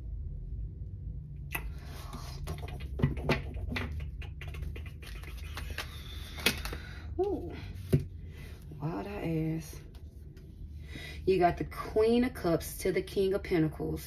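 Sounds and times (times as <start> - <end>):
low steady hum: 0.0 - 14.0
cards tapping and snapping: 2.5 - 6.9
cards shuffling rustle: 4.6 - 6.9.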